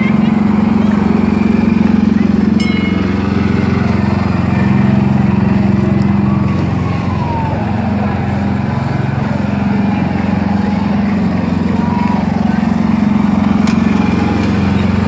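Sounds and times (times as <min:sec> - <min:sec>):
small engine humming: 0:00.0 - 0:15.0.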